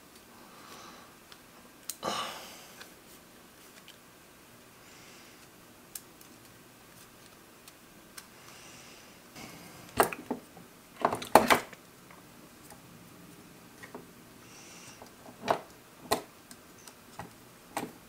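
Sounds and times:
plastic parts clicking and clattering: 0:11.0 - 0:11.8.

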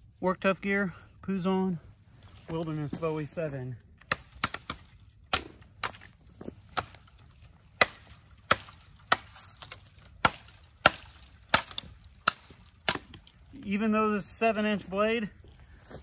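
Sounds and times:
knife chopping wood: 0:04.0 - 0:13.3.

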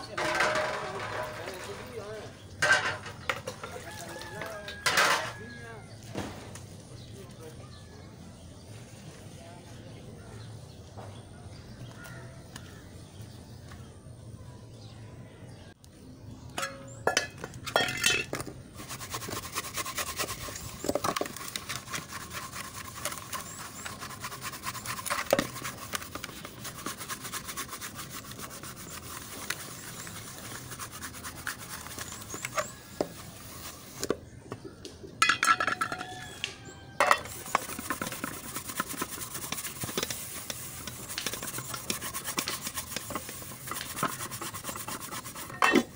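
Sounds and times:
pot being scrubbed: 0:00.0 - 0:05.4, 0:16.6 - 0:34.2, 0:37.0 - 0:45.9
metal pots clinking together: 0:00.1 - 0:01.6, 0:02.6 - 0:03.8, 0:04.8 - 0:05.4, 0:16.6 - 0:18.4, 0:35.2 - 0:36.3, 0:37.0 - 0:37.3, 0:45.5 - 0:45.9.

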